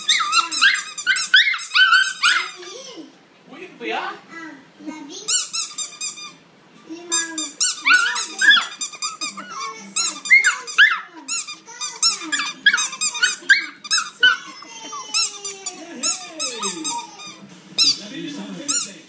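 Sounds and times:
squeaky rubber toy: 0.0 - 2.9, 5.3 - 6.4, 7.1 - 18.0.

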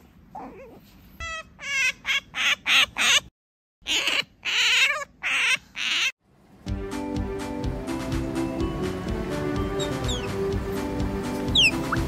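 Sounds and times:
otter squeaking: 9.8 - 10.4, 11.5 - 12.0.

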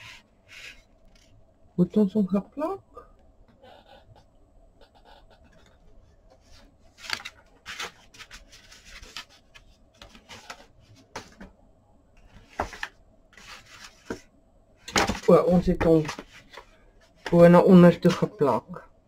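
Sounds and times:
paper and card rustling: 4.9 - 11.5, 12.2 - 18.3.

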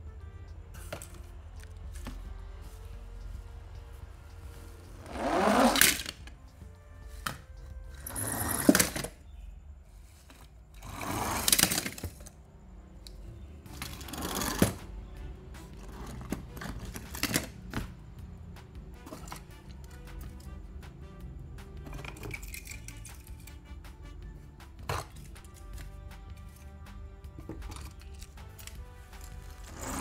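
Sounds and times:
toy cars rolling on ribbed plastic: 5.0 - 6.3, 7.2 - 9.2, 10.2 - 12.4, 13.7 - 14.8, 15.8 - 17.8, 27.4 - 30.0
toy cars set down clicks: 11.4 - 12.4.

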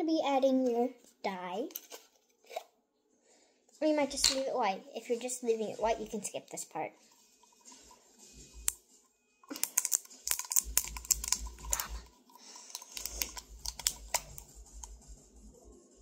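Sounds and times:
plastic container clicking: 12.7 - 14.4.

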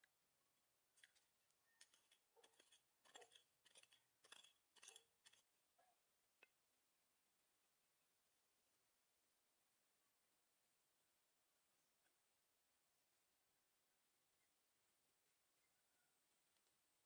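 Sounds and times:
hand digging dry soil: 1.0 - 5.5.

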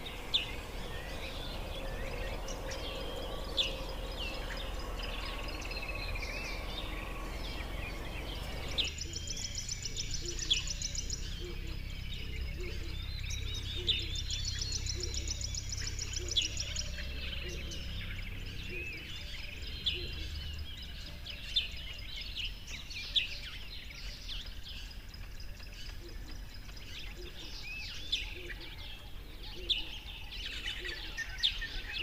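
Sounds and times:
low hum: 0.0 - 22.3
small birds chirping: 0.0 - 32.0.

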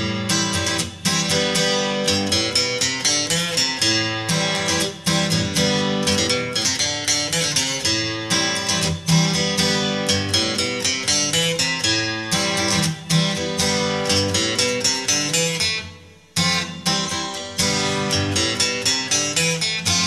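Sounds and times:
acoustic guitar music: 0.0 - 20.0.

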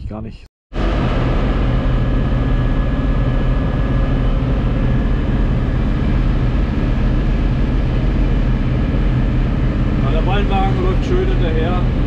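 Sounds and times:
tractor engine running inside cab: 1.0 - 12.0.

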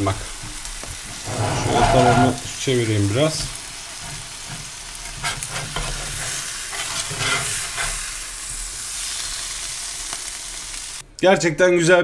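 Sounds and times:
meat sizzling in a skillet: 0.0 - 11.0
metal spatula scraping pan: 1.1 - 2.7, 3.4 - 8.1.

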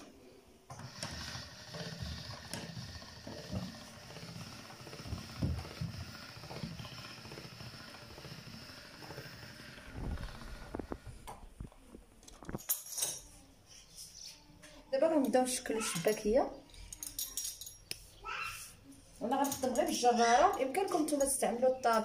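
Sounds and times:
pasta machine rollers rumbling: 0.7 - 11.2.

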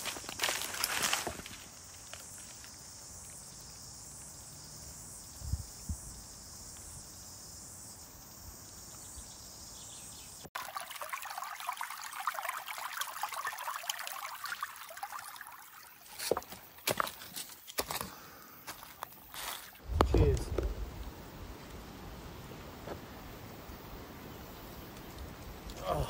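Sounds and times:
faint high insect hum: 0.0 - 10.5, 12.8 - 26.0
stream running over rocks: 10.5 - 26.0.

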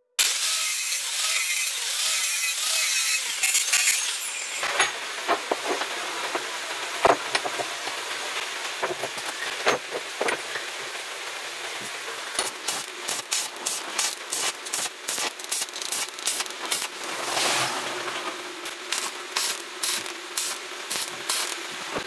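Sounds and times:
angle grinder cutting steel: 0.1 - 5.0, 12.4 - 21.6.

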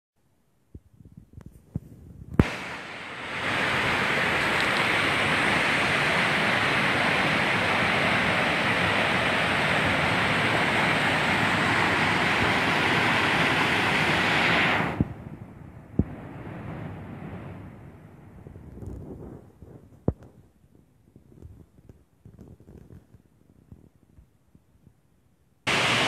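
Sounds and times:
waterfall rushing: 2.6 - 14.9, 25.7 - 26.0.

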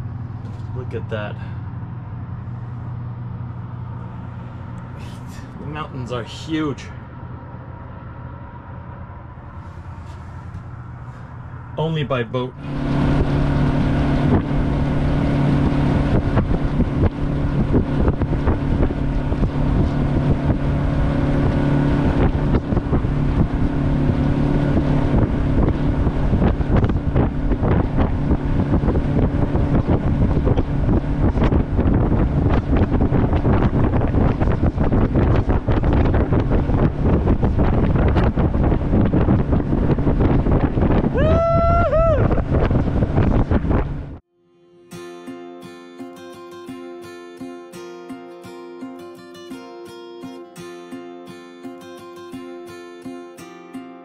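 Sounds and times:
boat engine drone: 0.0 - 49.1
wind buffeting microphone: 12.6 - 44.2.

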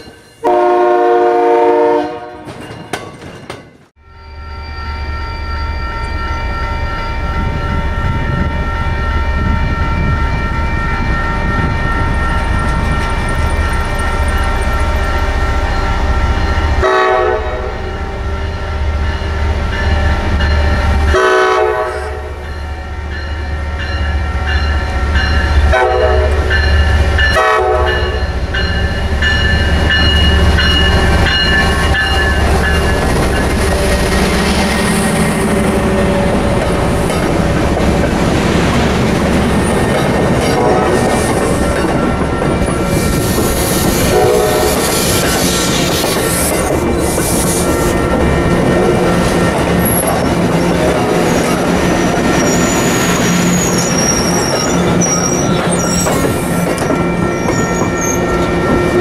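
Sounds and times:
crossing bells ringing: 0.0 - 0.8, 2.4 - 59.0
train air horn blasts: 0.4 - 2.5, 14.8 - 18.9, 20.9 - 22.4, 25.7 - 26.6, 27.3 - 28.2, 42.9 - 46.5
diesel locomotive rumbling: 4.7 - 59.0.

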